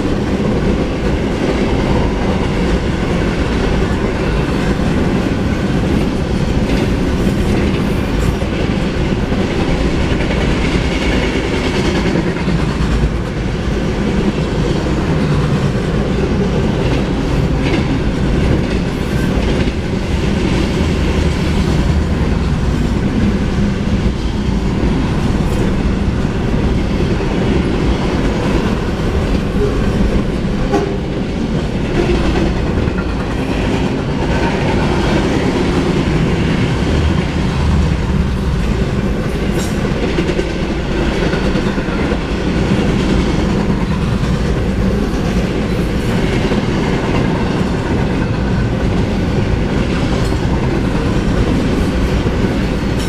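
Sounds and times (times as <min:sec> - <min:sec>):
freight train wheels rumbling on rails: 0:00.0 - 0:53.0.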